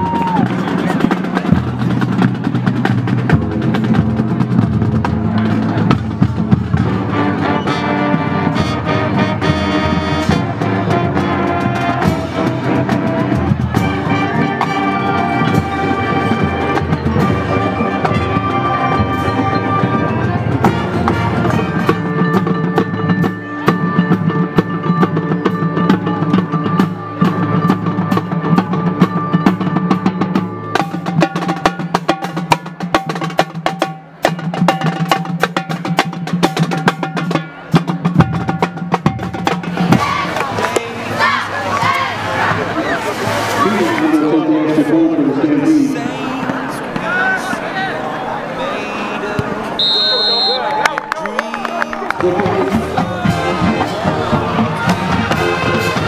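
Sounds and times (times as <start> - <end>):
marching drums and cymbals: 0.0 - 43.9, 52.2 - 56.0
brass and woodwinds chords: 6.8 - 29.6, 49.8 - 50.8, 52.2 - 56.0
mallet percussion: 13.4 - 31.9.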